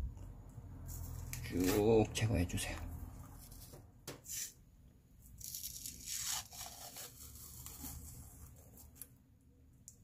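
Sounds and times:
film peeling off fish skin: 5.4s - 8.2s.

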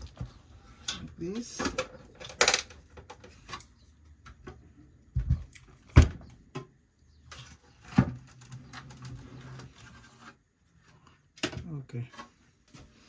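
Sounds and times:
plastic casing scraping and rustling: 7.2s - 11.1s.

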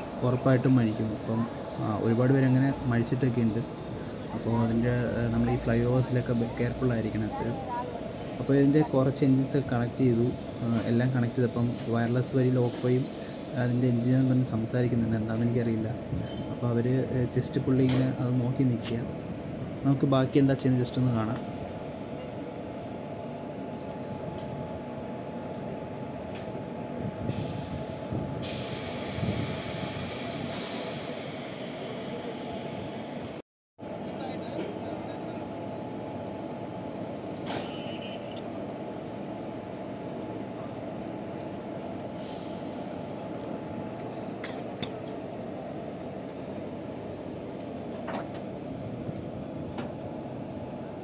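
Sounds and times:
locomotive machinery hum: 0.0s - 51.0s
air hiss bursts: 27.3s - 31.9s.

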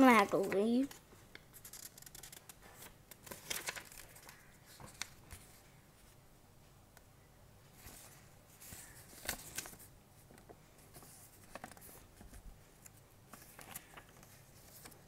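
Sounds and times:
faint handling clicks and rustles: 7.7s - 15.0s.

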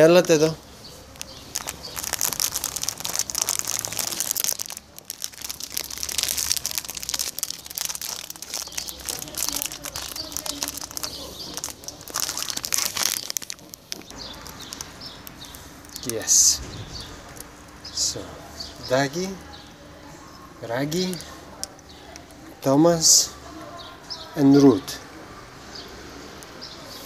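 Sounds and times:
plastic bag crinkling: 0.0s - 17.5s.

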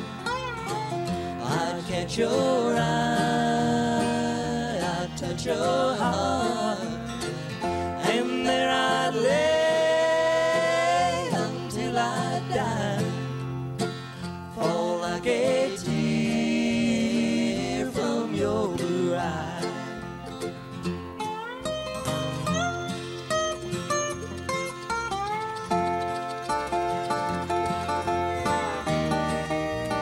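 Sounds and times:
bluegrass band playing: 0.0s - 30.0s
picked mandolin: 0.0s - 30.0s.

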